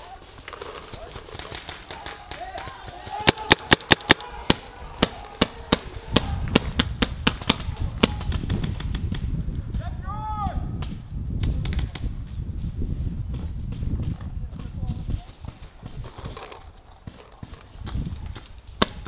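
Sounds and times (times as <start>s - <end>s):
paintball markers firing: 0.4s - 9.2s
distant shout: 1.8s - 6.5s.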